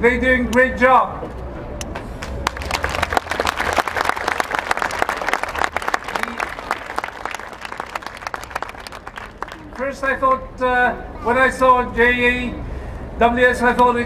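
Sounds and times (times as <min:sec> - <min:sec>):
crowd applause: 0:02.2 - 0:10.1.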